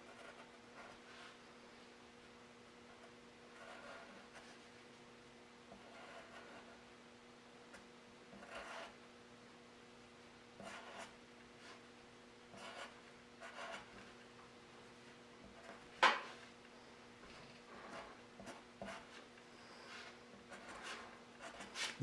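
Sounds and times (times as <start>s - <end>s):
pencil scratching on paper: 0.0s - 1.4s, 2.9s - 4.8s, 5.7s - 6.8s, 8.3s - 9.0s, 10.6s - 11.9s, 12.5s - 14.2s, 15.4s - 16.4s, 17.6s - 22.0s.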